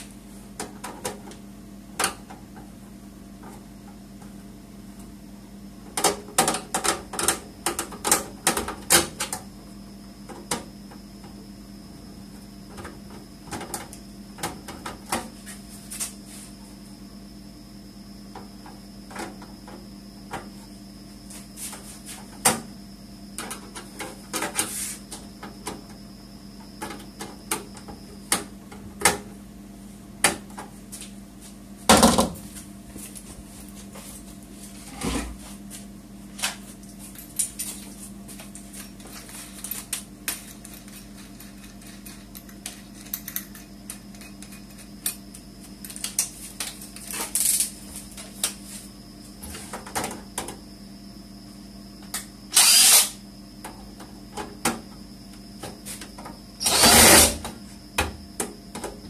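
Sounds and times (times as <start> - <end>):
power drill driving screws: 52.5 - 53.2, 56.6 - 57.4.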